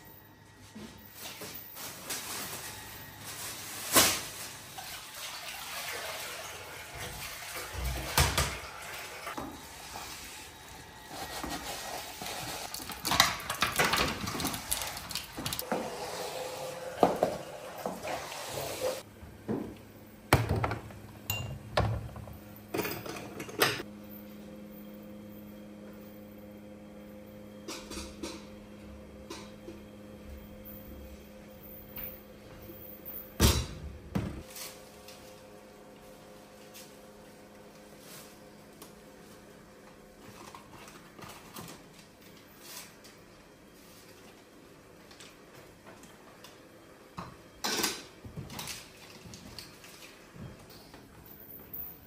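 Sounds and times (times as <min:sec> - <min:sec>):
dishes clinking against sink: 0:20.4 - 0:23.8.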